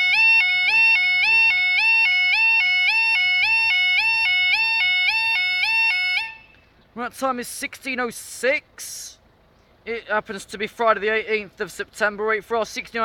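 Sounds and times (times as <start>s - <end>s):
level crossing two-tone alarm: 0.0s - 6.4s.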